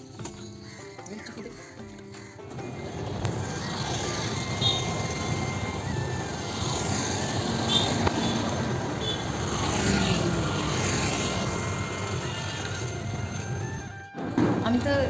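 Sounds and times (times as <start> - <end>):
motorbikes passing: 0.0 - 15.0
car passing: 2.6 - 14.0.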